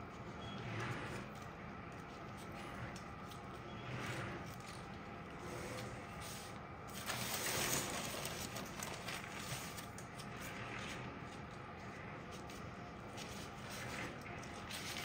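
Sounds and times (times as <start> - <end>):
baking paper rustling: 0.0 - 15.0.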